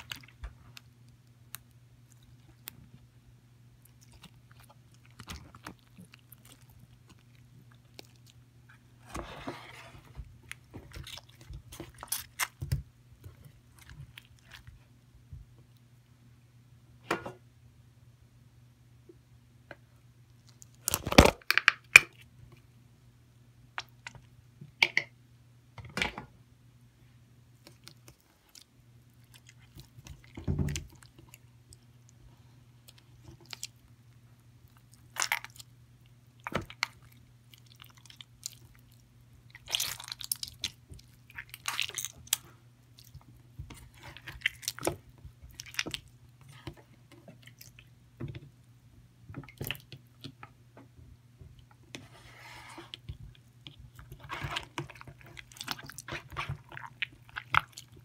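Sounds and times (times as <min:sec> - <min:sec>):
slime squelching and popping: 0:34.7 - 0:35.8, 0:36.4 - 0:47.9, 0:53.0 - 0:58.0.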